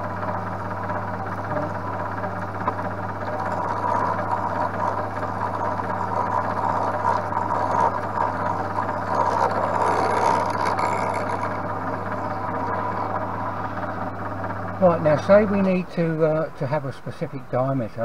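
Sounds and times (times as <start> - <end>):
milling machine motor hum: 0.0 - 16.6
end mill cutting plastic: 0.9 - 13.3.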